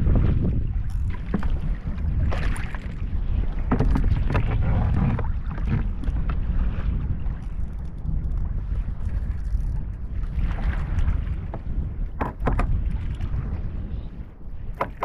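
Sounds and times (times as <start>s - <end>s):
water splashes: 0.0s - 13.7s
wind rumbling on microphone: 0.0s - 15.0s
knocks against kayak hull: 12.2s - 12.8s, 14.7s - 15.0s.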